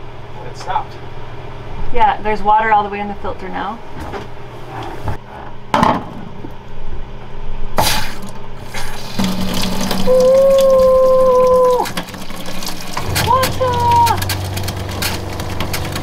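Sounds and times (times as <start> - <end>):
water pump whining: 8.1 - 16.0
water running into a metal sink: 8.1 - 16.0.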